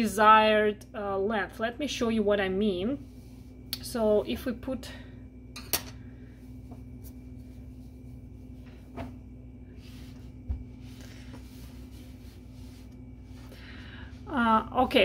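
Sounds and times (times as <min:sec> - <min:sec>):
steady low hum: 0:00.0 - 0:15.0
faint fabric rustle: 0:06.4 - 0:13.5.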